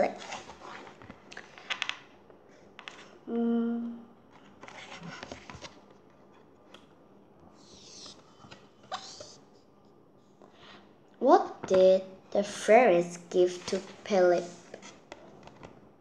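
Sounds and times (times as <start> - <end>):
book pages rustling: 0.0 - 3.2, 4.3 - 6.9, 7.5 - 9.4, 13.4 - 15.9
girl humming: 3.3 - 4.1.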